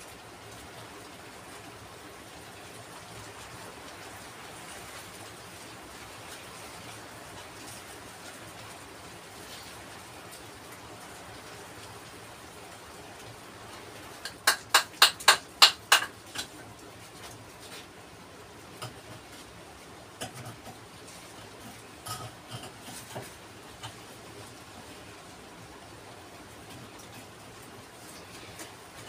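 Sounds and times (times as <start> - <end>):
tool tapping on stone: 14.2 - 16.5.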